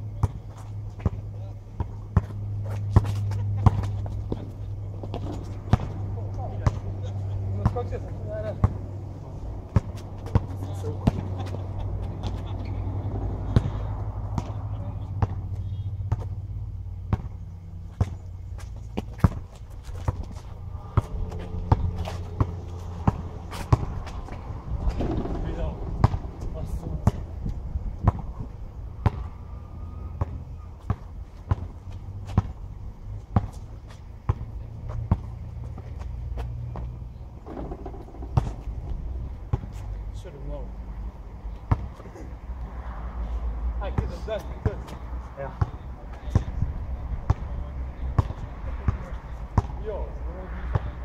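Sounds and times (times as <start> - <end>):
steady low rumble: 0.0 - 51.0
basketball bouncing on asphalt: 0.1 - 9.0, 9.6 - 40.0, 41.5 - 42.1, 43.8 - 51.0
low rumble: 19.8 - 29.9.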